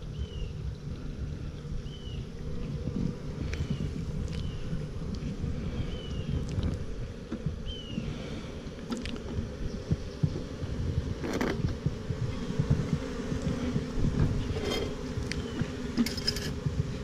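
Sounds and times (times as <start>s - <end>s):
bees buzzing: 0.0s - 17.0s
wooden hive frames knocking: 6.3s - 17.0s.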